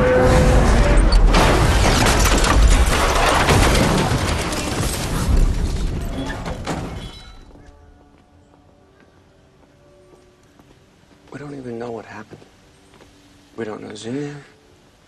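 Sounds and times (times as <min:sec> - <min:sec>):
metal crashing: 0:00.0 - 0:07.5
glass shattering: 0:01.1 - 0:07.5.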